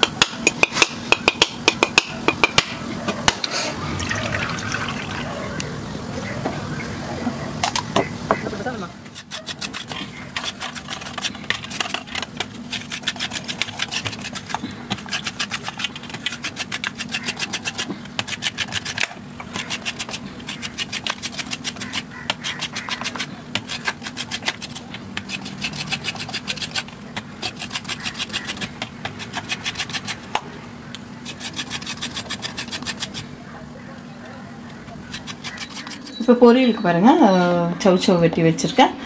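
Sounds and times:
metal scraper grating coconut: 9.1 - 30.3, 31.2 - 33.3, 35.0 - 36.2.

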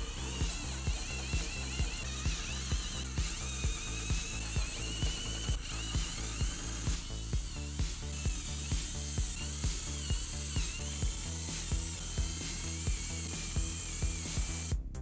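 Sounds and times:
power drill boring into wood: 0.0 - 14.7
background music with steady beat: 0.0 - 15.0.

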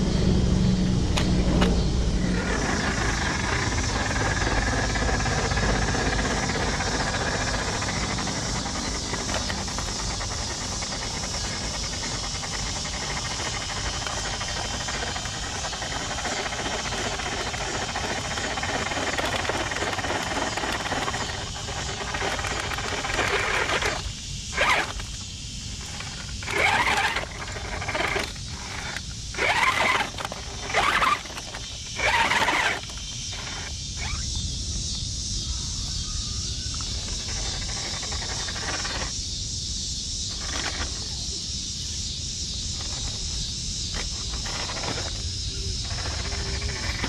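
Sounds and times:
electric motor whine: 0.0 - 34.4, 43.9 - 47.0.

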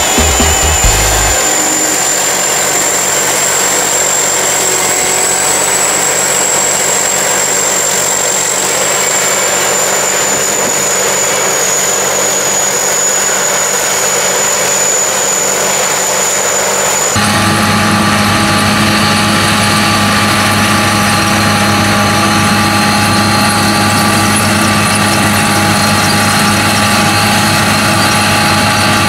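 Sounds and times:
combine harvester engine running: 0.0 - 29.0
high-pitched whine: 0.0 - 29.0.

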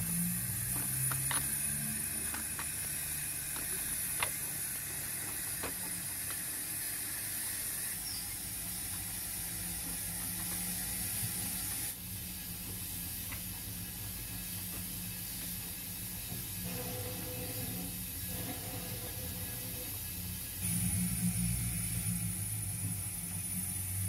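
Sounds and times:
wheels clicking over rail joints: 0.0 - 7.6
model train motor hum: 0.0 - 24.0
steady hiss: 0.0 - 24.0.

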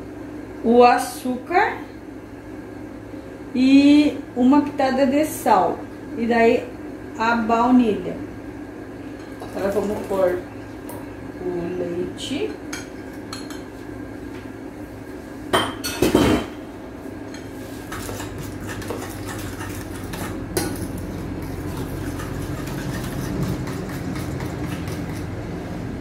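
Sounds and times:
utensils clattering against bowl: 17.3 - 25.3
spoon stirring batter in glass bowl: 17.4 - 25.3.

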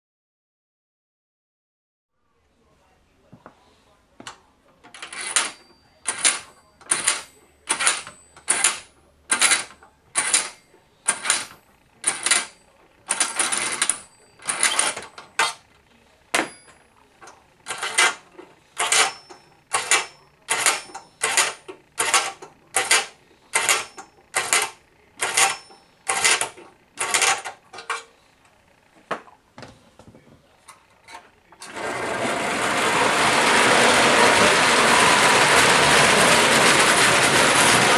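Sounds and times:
clockwork motor running: 6.1 - 15.5, 17.6 - 27.5, 31.6 - 37.9.

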